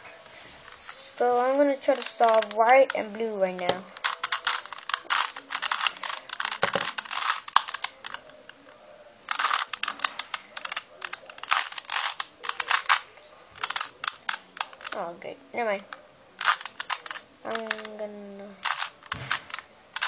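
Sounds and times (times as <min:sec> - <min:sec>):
plastic puzzle cube clicking: 0:01.9 - 0:08.2, 0:09.3 - 0:15.0, 0:16.4 - 0:18.0, 0:18.6 - 0:20.0.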